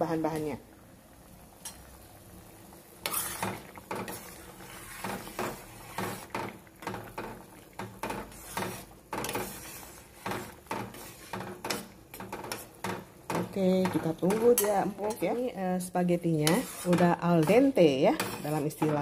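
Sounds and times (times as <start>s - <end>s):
metal spoon scraping metal pot: 3.0s - 15.5s, 16.3s - 19.0s.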